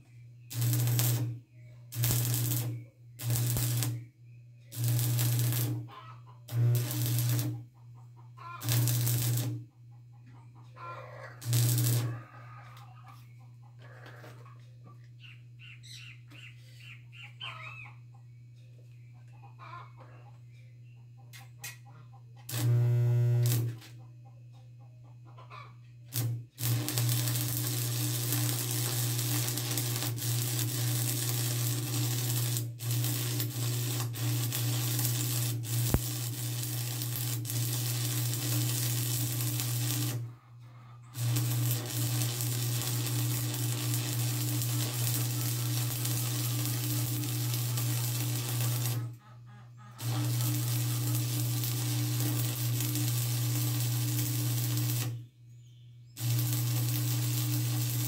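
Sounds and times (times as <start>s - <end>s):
low electrical hum: 0.0s - 7.7s, 11.3s - 13.6s, 22.5s - 23.9s, 25.9s - 40.6s, 41.2s - 49.2s, 50.0s - 58.0s
crackling hiss: 26.2s - 40.2s, 41.2s - 49.0s, 50.0s - 55.2s, 56.2s - 58.0s.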